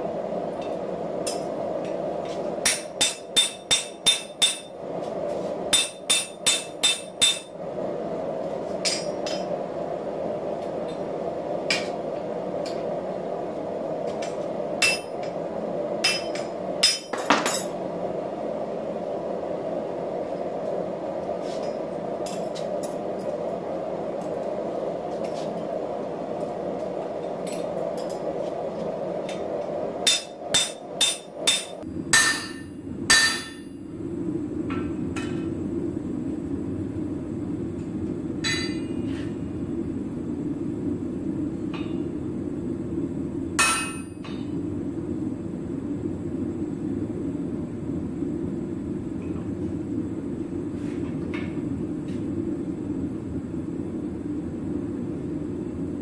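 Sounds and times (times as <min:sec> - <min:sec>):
steady background roar: 0:00.0 - 0:56.0
hammer striking hot steel: 0:00.6 - 0:04.8, 0:05.7 - 0:07.6, 0:08.8 - 0:09.5, 0:14.2 - 0:15.4, 0:16.0 - 0:17.7, 0:29.2 - 0:33.7, 0:38.4 - 0:39.1, 0:43.6 - 0:44.4.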